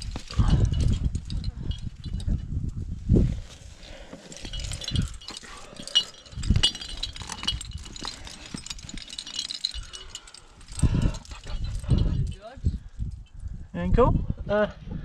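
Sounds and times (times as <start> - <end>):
carabiners clinking and rattling: 0.0 - 13.6.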